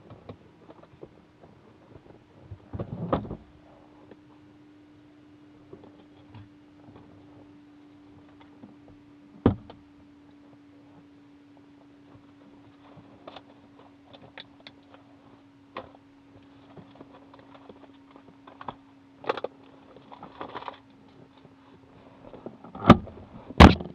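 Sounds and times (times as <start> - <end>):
steady low hum: 0.0 - 23.9
clicks and rustles of handling: 9.7 - 23.9.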